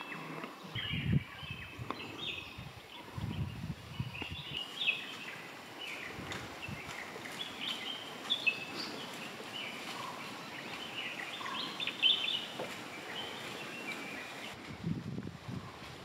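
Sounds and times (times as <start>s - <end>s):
birds chirping: 0.0s - 15.9s
faint steady hiss: 1.8s - 16.0s.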